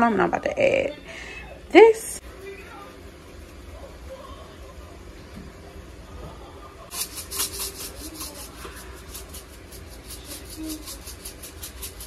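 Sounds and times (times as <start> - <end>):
seasoning shakers rattling: 6.9 - 12.0.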